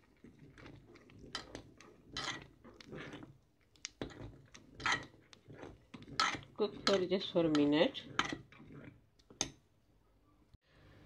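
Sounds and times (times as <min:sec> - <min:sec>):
metal spoon scraping metal pan: 0:01.2 - 0:03.3, 0:04.0 - 0:08.9.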